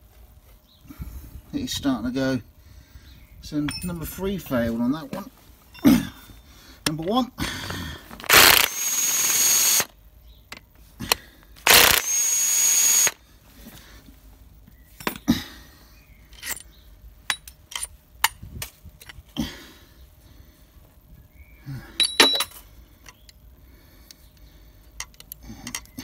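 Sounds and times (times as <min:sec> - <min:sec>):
power tool whining: 0:08.2 - 0:09.9, 0:11.6 - 0:13.2.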